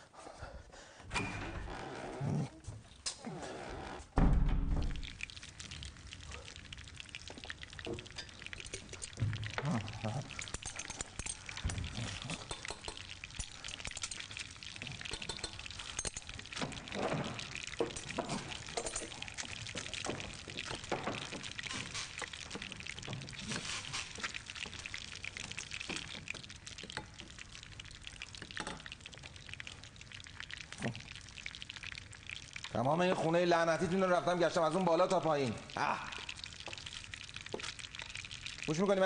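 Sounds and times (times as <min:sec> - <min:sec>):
stirring and scraping in a bowl: 0:07.7 - 0:27.0
utensils and dishes clicking: 0:10.3 - 0:16.7.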